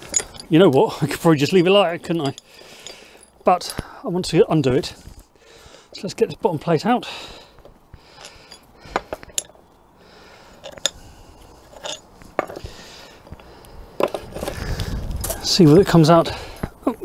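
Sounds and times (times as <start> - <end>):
metal tools clinking and knocking: 0.0 - 4.8, 8.1 - 9.6, 10.5 - 12.7.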